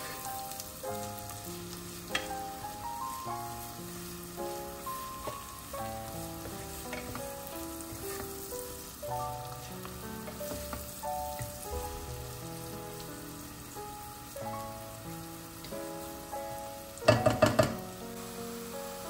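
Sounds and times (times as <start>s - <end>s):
melodic background music: 0.0s - 18.8s
carrot sizzling in oil: 0.0s - 19.0s
wooden spoon scraping pot: 6.4s - 8.5s.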